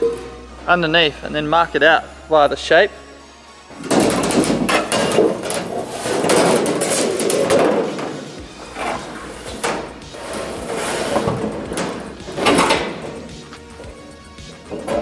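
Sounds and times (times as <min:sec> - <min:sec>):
metal sheet scraping and wobbling: 0:03.7 - 0:13.3
sharp knocks: 0:03.8 - 0:08.2.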